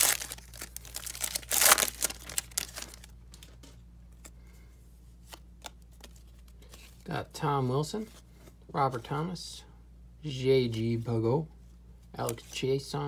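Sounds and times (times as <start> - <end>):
wrapper tearing and crinkling: 0.0 - 3.1.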